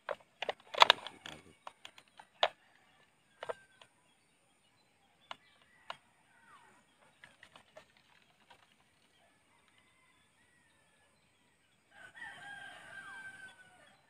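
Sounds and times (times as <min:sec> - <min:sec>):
plastic bottle clicks and crinkles: 0:00.0 - 0:02.6.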